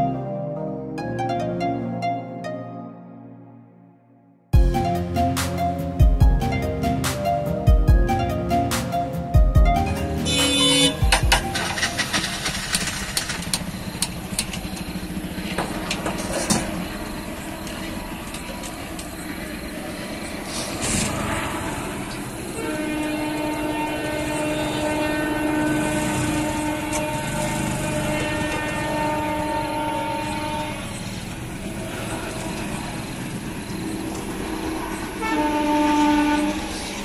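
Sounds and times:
steady horn-like tone: 10.2s - 11.0s, 20.4s - 31.1s, 34.4s - 37.0s.

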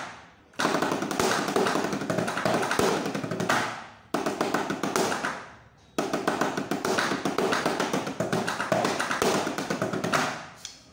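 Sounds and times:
rapid drum strokes on practice pads: 6.0s - 10.3s.

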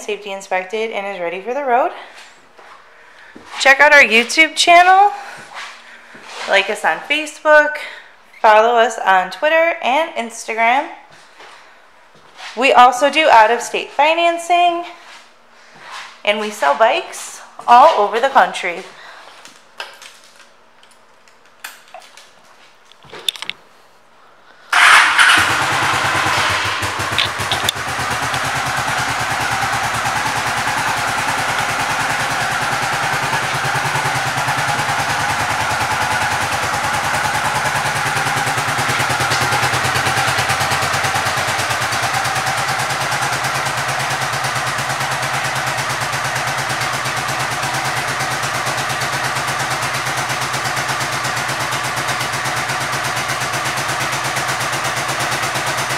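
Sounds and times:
motorcycle engine idling: 24.7s - 55.9s.

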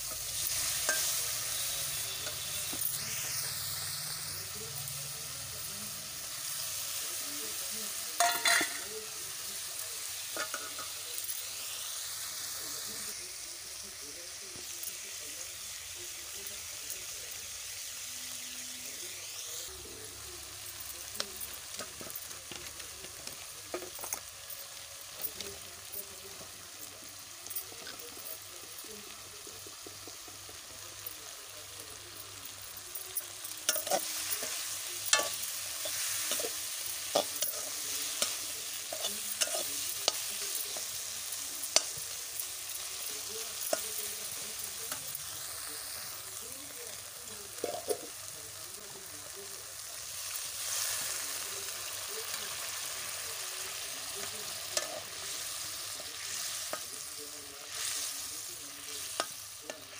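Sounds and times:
metal spoon scraping a pan: 0.0s - 4.1s, 8.2s - 8.9s, 10.1s - 11.4s, 33.2s - 45.1s, 53.7s - 57.1s
tomatoes sizzling in a pan: 0.0s - 59.9s.

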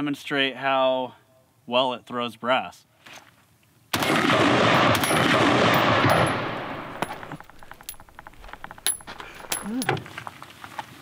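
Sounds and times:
automatic rifle fire: 4.0s - 7.4s
spent casings clinking: 4.7s - 10.0s.

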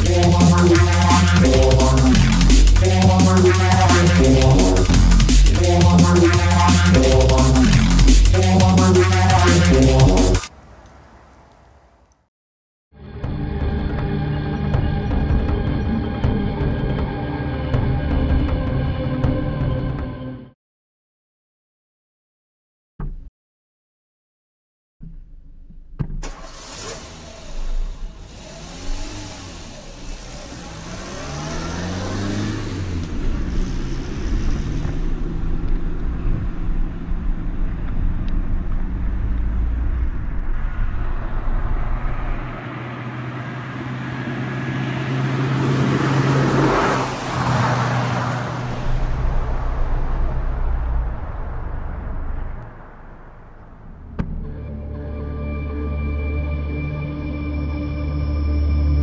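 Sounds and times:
car engine accelerating: 0.0s - 12.2s, 26.2s - 55.2s
tyre and ground noise: 0.0s - 12.3s, 25.0s - 54.7s.

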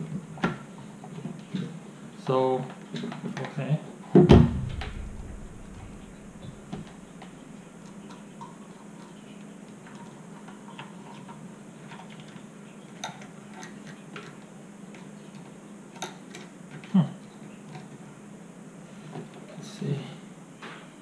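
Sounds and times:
faint low hum: 4.2s - 16.0s.

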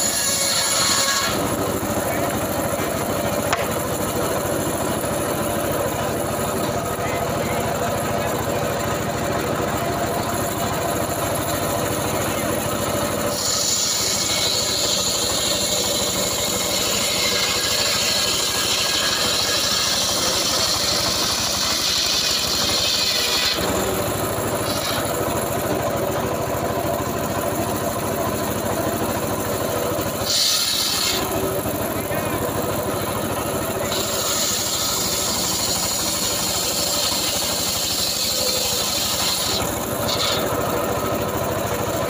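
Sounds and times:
saw blade cutting through log: 0.0s - 26.3s, 27.5s - 42.0s
engine running: 0.0s - 42.0s.

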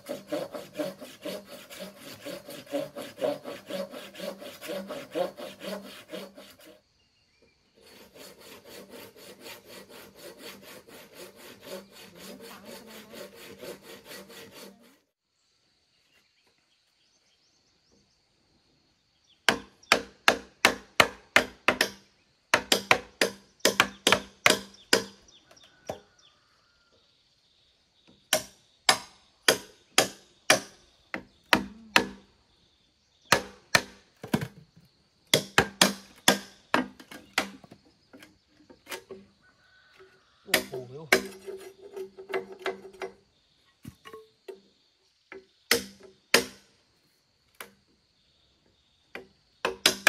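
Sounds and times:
hand saw cutting wood: 0.0s - 6.8s, 7.8s - 15.2s, 22.6s - 25.2s, 28.3s - 30.8s, 31.5s - 32.2s, 33.3s - 34.5s, 35.3s - 39.2s, 40.5s - 43.2s
blade chopping wood: 33.3s - 34.6s, 35.3s - 37.7s, 45.7s - 46.6s, 49.7s - 50.0s.

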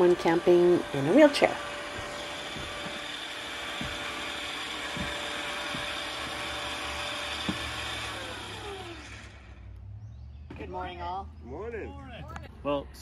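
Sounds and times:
electric winch motor whine: 0.0s - 10.4s
small knocks: 1.8s - 8.1s.

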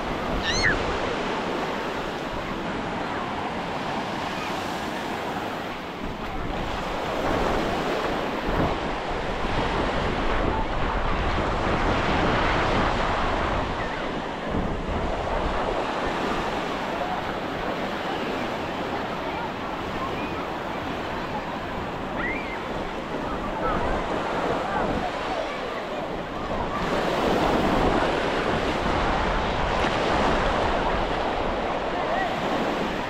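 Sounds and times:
ocean surf washing: 0.0s - 33.0s
wind buffeting microphone: 5.9s - 17.8s.

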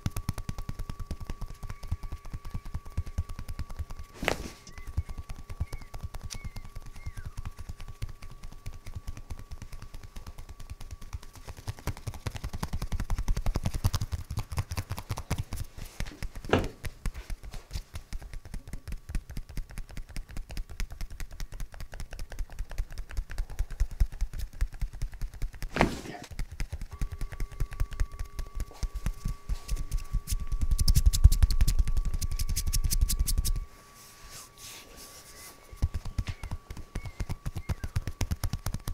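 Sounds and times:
hands slapping on bare skin: 0.0s - 33.6s, 35.7s - 38.9s.

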